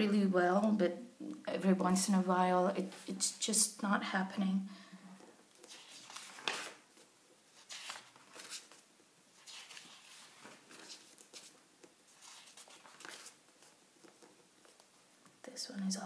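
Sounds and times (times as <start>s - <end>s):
book pages rustling: 5.2s - 15.4s.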